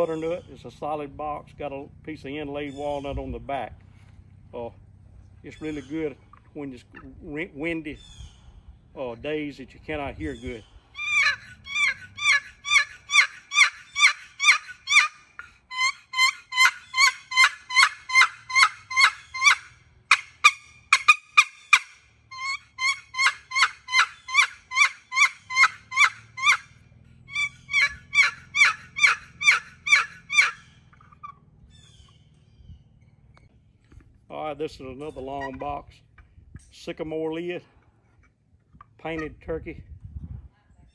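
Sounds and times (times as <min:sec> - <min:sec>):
turkey box call yelping: 0:10.4 - 0:32.7, 0:35.0 - 0:36.3.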